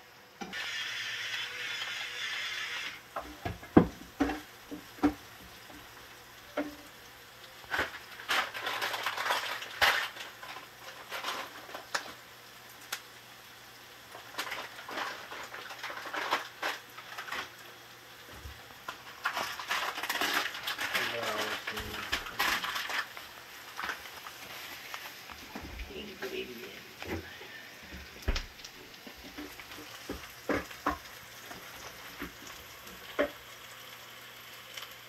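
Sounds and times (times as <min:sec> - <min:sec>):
pepper grinder grinding: 0:00.5 - 0:03.1, 0:07.7 - 0:12.2, 0:14.1 - 0:17.7, 0:18.8 - 0:24.5.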